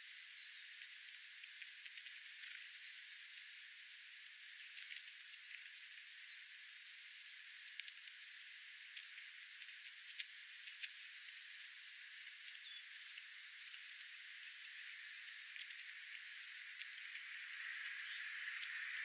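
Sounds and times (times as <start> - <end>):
steady outdoor hiss: 0.0 - 19.0
birds pecking on gravel: 0.5 - 19.0
faint high chirps: 4.7 - 19.0.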